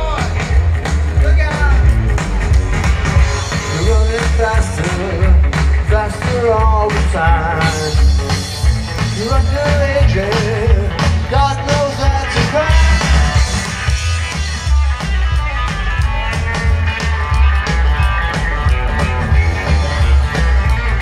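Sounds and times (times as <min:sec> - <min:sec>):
live rockabilly band playing: 0:00.0 - 0:21.0
wavering lead guitar: 0:00.0 - 0:21.0.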